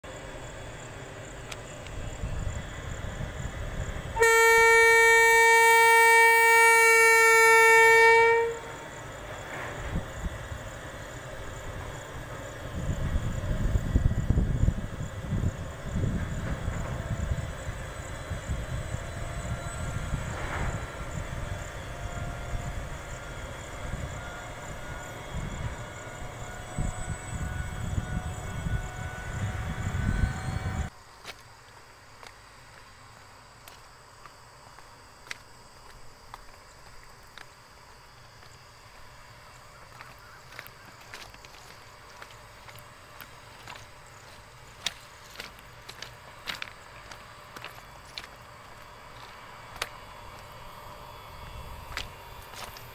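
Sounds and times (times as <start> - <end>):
locomotive rumbling: 0.0 - 30.9, 36.0 - 52.9
faint steady whine: 0.0 - 52.9
electric locomotive horn blast: 4.0 - 9.0, 19.3 - 30.9.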